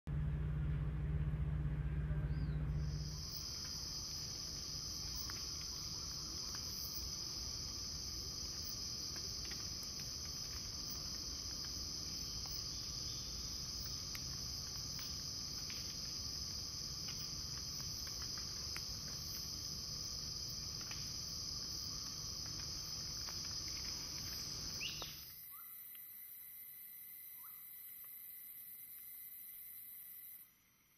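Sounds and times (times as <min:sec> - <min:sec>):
low rumble: 0:00.1 - 0:04.9
high-pitched insect chorus: 0:02.4 - 0:30.9.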